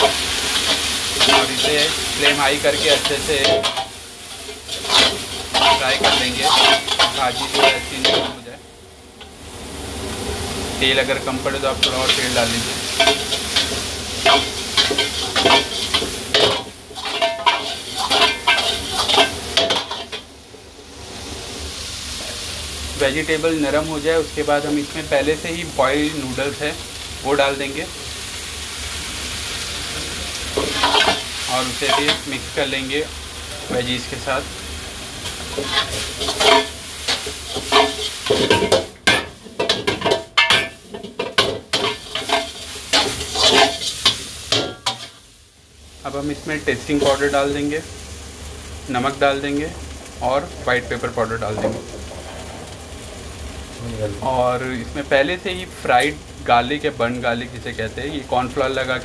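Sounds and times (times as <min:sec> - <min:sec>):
metal ladle scraping a wok: 0:00.0 - 0:08.4, 0:11.8 - 0:20.3, 0:30.5 - 0:32.4, 0:35.2 - 0:45.3
vegetables sizzling: 0:00.0 - 0:59.0.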